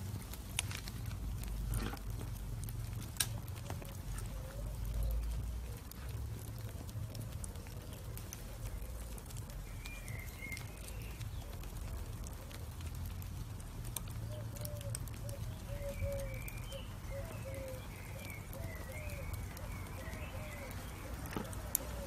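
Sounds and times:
steady low rumble: 0:00.0 - 0:17.2
charcoal embers crackling: 0:00.0 - 0:22.0.

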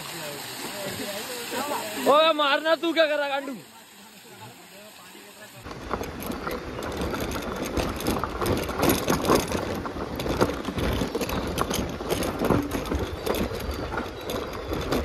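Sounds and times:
motorcycle engine and road noise: 0:05.6 - 0:15.0
knocks and rattles: 0:05.7 - 0:15.0.

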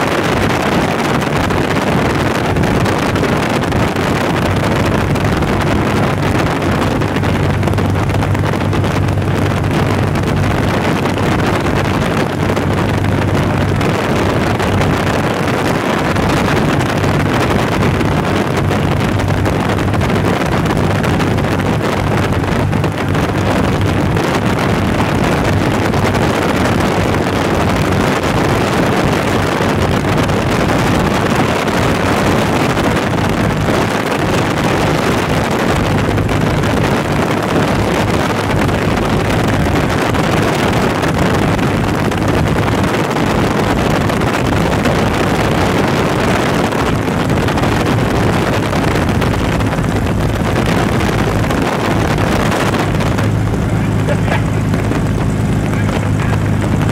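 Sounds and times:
wind rushing in: 0:00.0 - 0:56.9
light airplane engine drone: 0:51.7 - 0:56.9.

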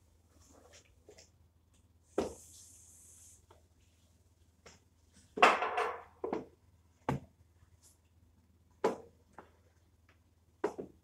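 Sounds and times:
table knocking on tiled floor: 0:05.4 - 0:06.5.

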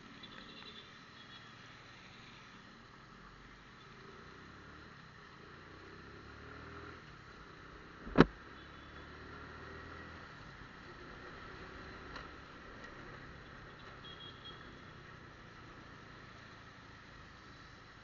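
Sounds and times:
tyre hiss on wet road: 0:01.3 - 0:03.7
motorcycle engine running: 0:08.0 - 0:08.3
sharp knock: 0:08.0 - 0:08.3.

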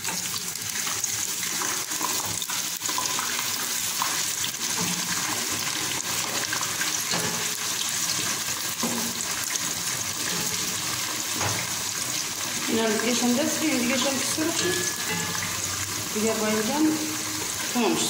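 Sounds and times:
eggplant sizzling in hot oil: 0:00.0 - 0:18.0
wooden spatula scraping and tapping: 0:06.2 - 0:11.8.

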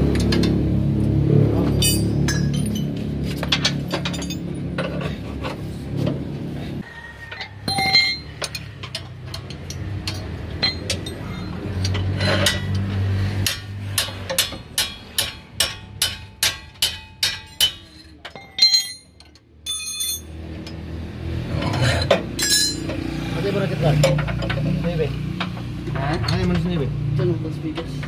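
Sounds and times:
metal tools clinking on steel: 0:01.6 - 0:05.6, 0:07.2 - 0:20.8, 0:21.6 - 0:23.0, 0:25.9 - 0:26.8.

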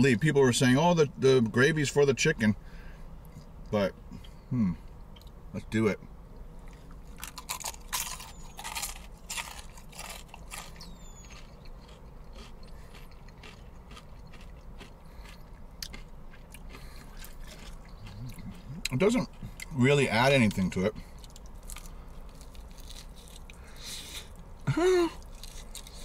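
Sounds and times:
chewing: 0:06.6 - 0:19.8, 0:21.0 - 0:24.5, 0:25.2 - 0:26.0
crunching fried chicken: 0:06.6 - 0:26.0.

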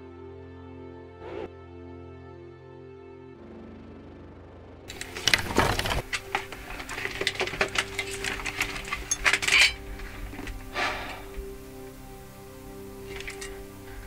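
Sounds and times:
soft music: 0:00.0 - 0:03.4, 0:04.9 - 0:14.0
steel armor clinking: 0:04.9 - 0:11.6, 0:13.0 - 0:14.0.

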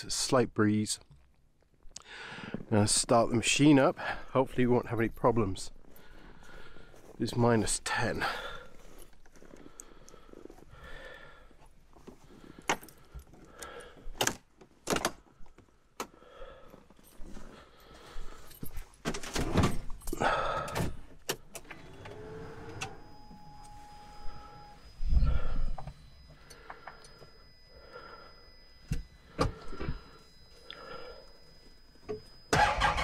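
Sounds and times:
steady electronic tone: 0:21.6 - 0:33.0.

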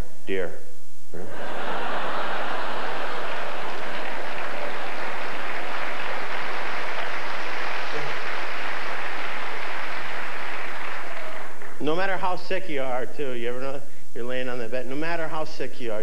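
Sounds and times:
audience applauding: 0:01.5 - 0:12.0.

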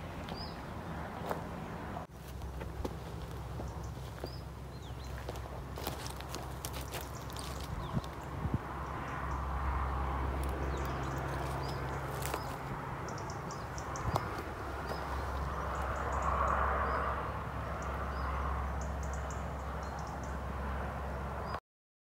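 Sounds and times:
footsteps on stony ground: 0:01.2 - 0:01.5, 0:02.1 - 0:08.3, 0:10.4 - 0:12.8, 0:13.6 - 0:15.9.

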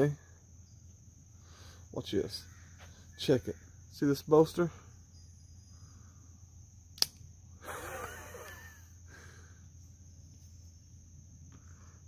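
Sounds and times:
crickets trilling: 0:00.0 - 0:12.0
pocketknife blade click: 0:07.0 - 0:07.2.

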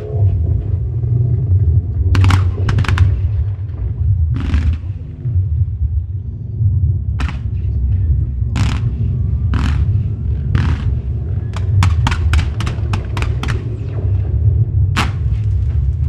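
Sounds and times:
fireworks rumbling: 0:00.2 - 0:06.0, 0:07.0 - 0:16.0
sharp firework crack: 0:02.2 - 0:03.4, 0:04.4 - 0:05.0, 0:11.6 - 0:13.9, 0:15.0 - 0:15.7.

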